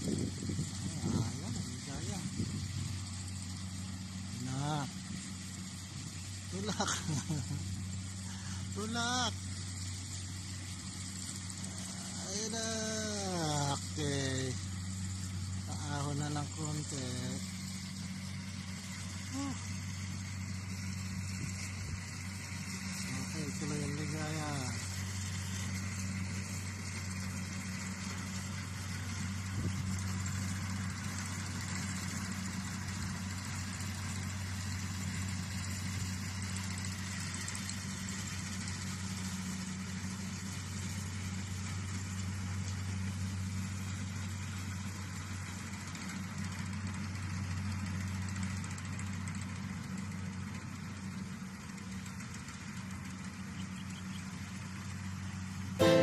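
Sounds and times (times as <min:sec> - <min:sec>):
combine harvester engine humming: 0:00.0 - 0:56.0
hiss: 0:10.5 - 0:12.3.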